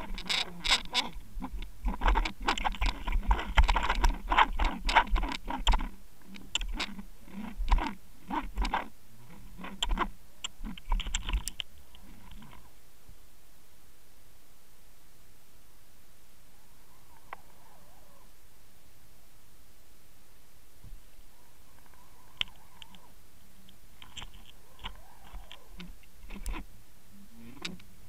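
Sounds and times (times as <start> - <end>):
underwater clicks and knocks: 0.0 - 8.8, 9.6 - 11.6.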